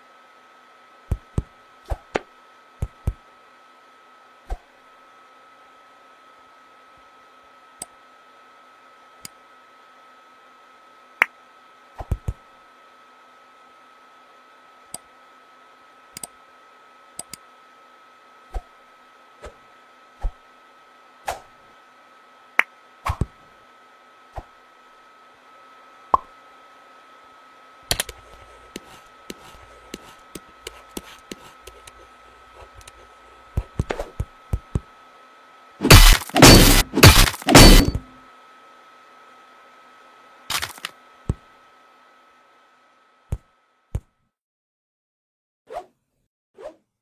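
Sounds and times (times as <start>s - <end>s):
faint steady hum: 0.0s - 44.1s
cartoon clicks and knocks: 35.8s - 38.1s.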